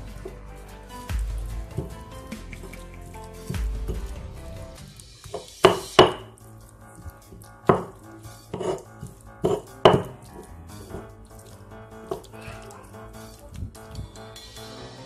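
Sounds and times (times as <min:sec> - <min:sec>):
stone pestle grinding: 0:00.0 - 0:14.4
stone-on-stone knocks: 0:05.3 - 0:06.3, 0:07.7 - 0:08.0, 0:08.6 - 0:10.2.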